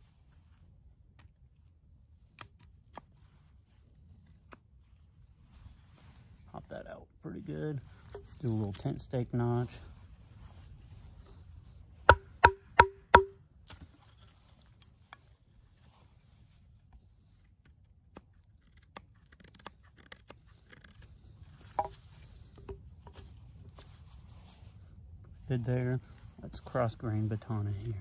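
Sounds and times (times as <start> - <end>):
wooden baton striking knife spine: 12.1 - 13.4.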